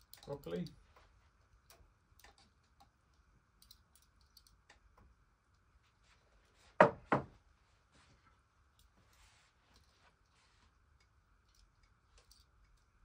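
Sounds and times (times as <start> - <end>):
plate knocking on wooden table: 6.8 - 7.3.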